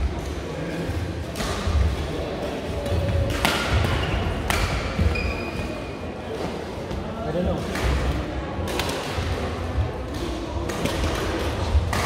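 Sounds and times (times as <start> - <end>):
rackets hitting shuttlecock: 2.8 - 5.2, 7.6 - 9.4, 10.1 - 12.0.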